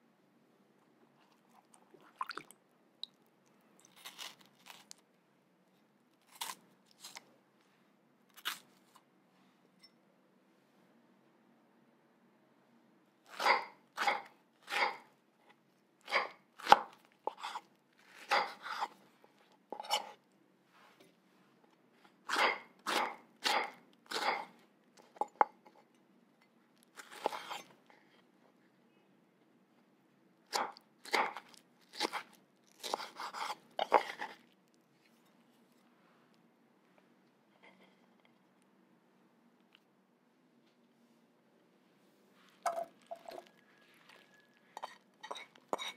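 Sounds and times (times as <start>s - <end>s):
knife slicing strawberries: 13.3s - 15.1s, 16.1s - 19.0s, 22.3s - 24.6s, 27.0s - 27.7s, 30.5s - 34.4s
knife cutting on wooden board: 32.8s - 34.3s.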